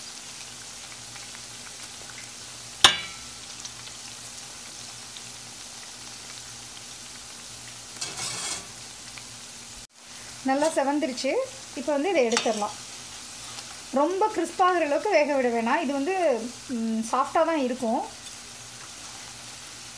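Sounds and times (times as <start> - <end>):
rustle: 0.0 - 10.8, 11.6 - 14.0, 18.1 - 19.9
oil sizzling: 0.0 - 19.9
spatula clinking against pan: 2.9 - 3.3.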